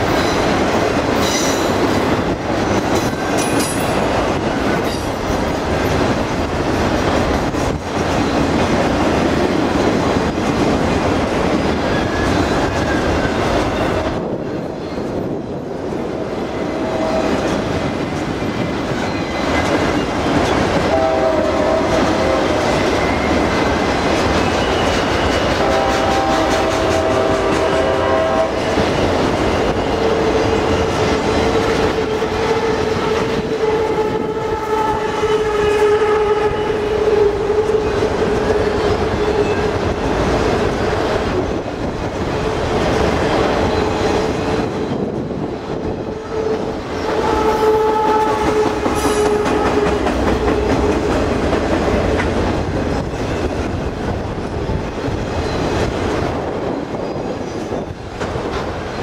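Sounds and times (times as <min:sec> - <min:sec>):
wheels clacking over rail joints: 0:00.0 - 0:14.0, 0:48.1 - 0:56.3
freight train rumble: 0:00.0 - 0:59.0.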